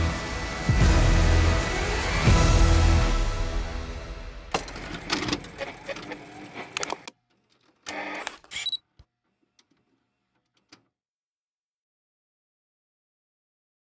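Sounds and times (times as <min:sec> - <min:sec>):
stuttering electronic clicks: 0:04.8 - 0:07.2
short bursts of static: 0:07.9 - 0:08.8.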